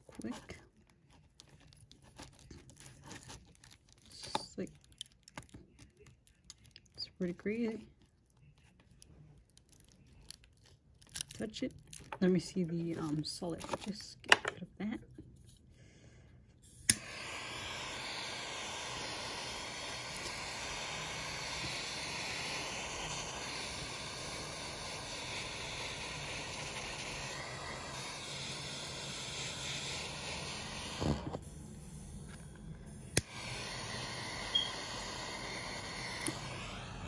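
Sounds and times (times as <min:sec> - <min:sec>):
flame hissing: 0:16.6 - 0:37.0
lighter click: 0:16.9 - 0:24.4.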